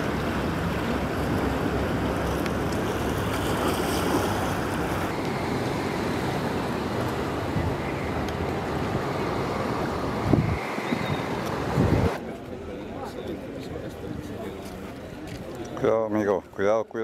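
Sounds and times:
outdoor background noise: 0.0s - 17.0s
wind on microphone: 10.1s - 12.2s.

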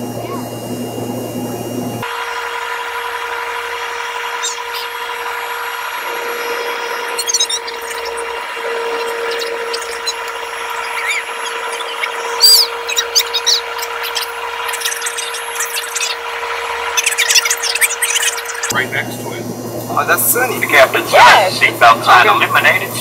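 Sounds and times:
jet cabin engine hiss: 0.0s - 23.0s
scraping squeaks: 3.8s - 18.7s.

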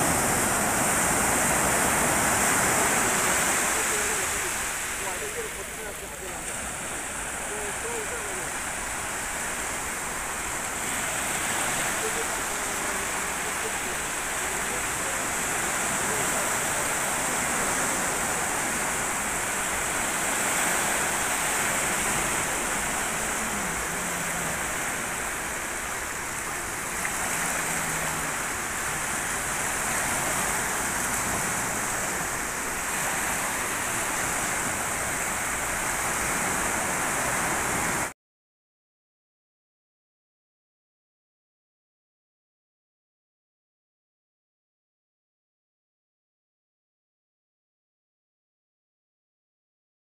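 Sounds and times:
sea surf washing: 0.0s - 38.1s.

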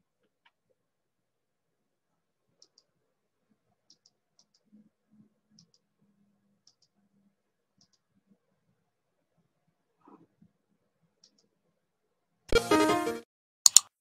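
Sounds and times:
faint computer mouse clicks: 2.6s - 2.9s, 3.9s - 4.7s, 5.6s - 5.9s, 6.6s - 7.0s, 7.8s - 8.0s, 11.2s - 11.5s, 13.7s - 13.9s.

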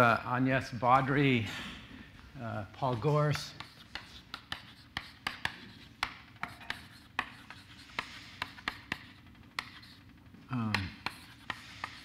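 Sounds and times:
chalk scratching: 2.9s - 12.0s
chalk tapping on blackboard: 3.3s - 12.0s.

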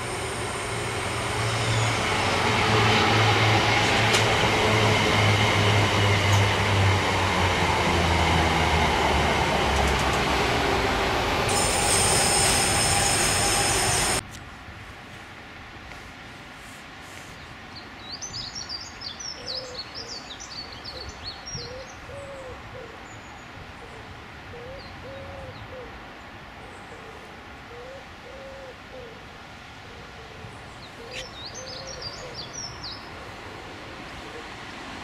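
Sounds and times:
songbird twittering: 30.8s - 33.1s.

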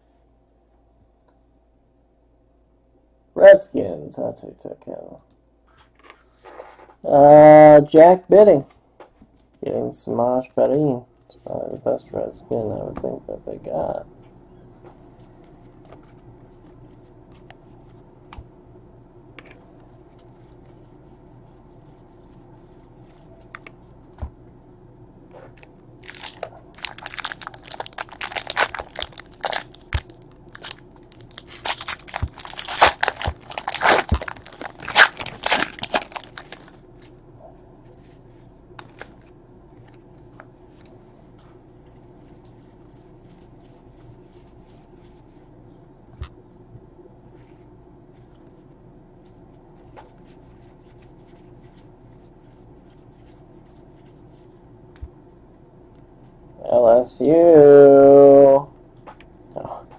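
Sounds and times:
foil wrapper tearing and crinkling: 26.0s - 36.8s
cards being handled: 26.0s - 37.2s.

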